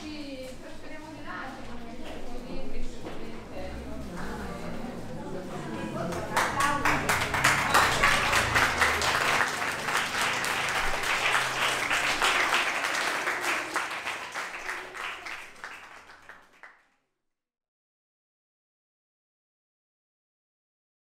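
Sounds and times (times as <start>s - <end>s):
audience applauding: 5.9s - 16.8s.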